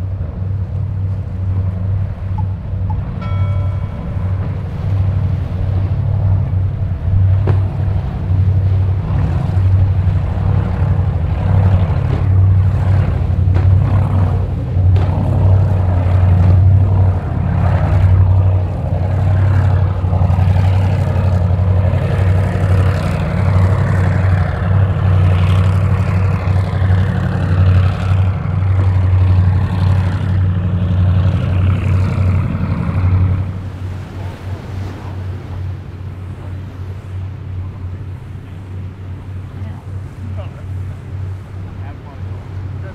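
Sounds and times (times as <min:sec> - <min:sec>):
powerboat engines rumbling: 0:00.0 - 0:42.9
water rushing: 0:00.0 - 0:42.9.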